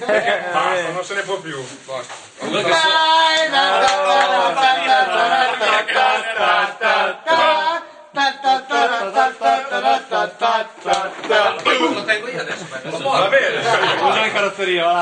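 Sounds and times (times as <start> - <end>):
men singing without instruments: 2.4 - 12.0.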